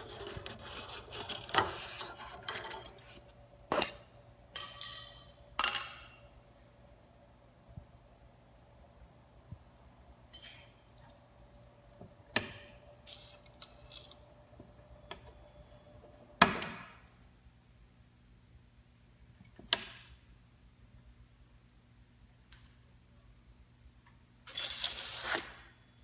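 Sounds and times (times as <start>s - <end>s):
low steady hum: 0.0s - 24.5s
faint steady tone: 14.5s - 16.4s.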